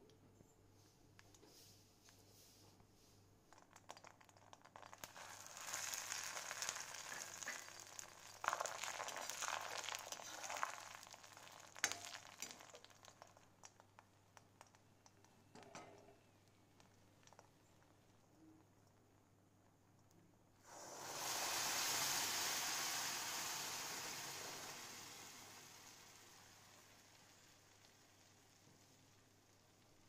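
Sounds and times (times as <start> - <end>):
hot oil sizzling and crackling: 3.5 - 15.8, 16.4 - 18.1, 20.6 - 30.0.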